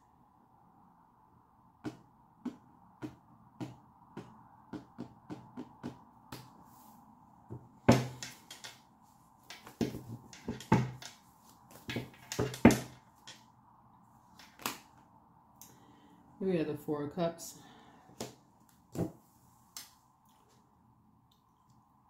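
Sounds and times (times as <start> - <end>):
cards riffling and slapping: 14.3 - 15.0.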